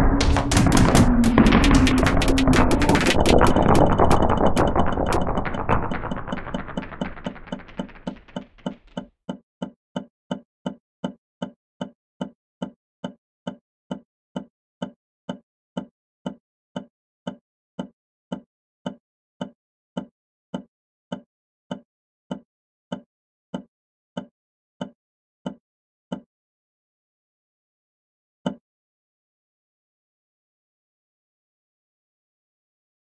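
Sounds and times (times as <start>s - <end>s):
pulse of low knocks: 0.0s - 8.8s.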